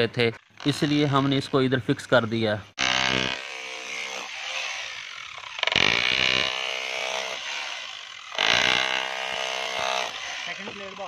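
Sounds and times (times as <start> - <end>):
rotary hammer drill boring concrete: 0.0 - 11.0.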